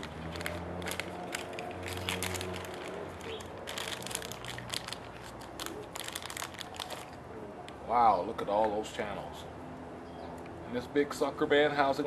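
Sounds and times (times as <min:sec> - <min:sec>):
plastic packaging crinkling: 0:00.0 - 0:07.2.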